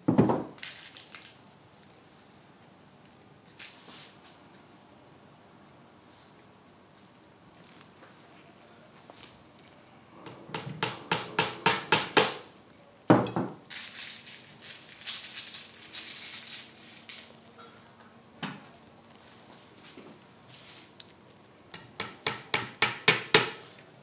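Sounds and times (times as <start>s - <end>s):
hammer tapping pins: 10.2s - 12.4s
plastic sheeting crinkling: 13.7s - 17.5s.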